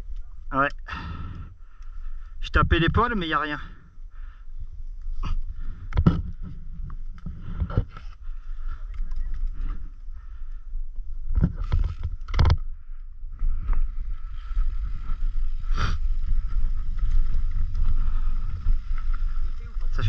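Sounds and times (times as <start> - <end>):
bike knocking and rattling: 11.3 - 12.8.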